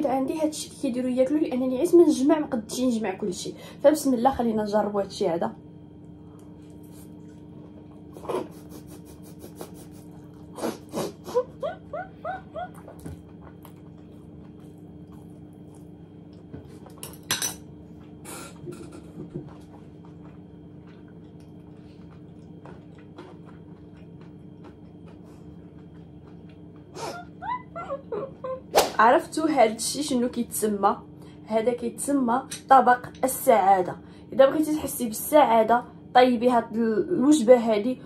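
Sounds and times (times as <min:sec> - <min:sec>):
low hum: 0:04.0 - 0:34.2
fork clinking on plate: 0:17.0 - 0:17.6.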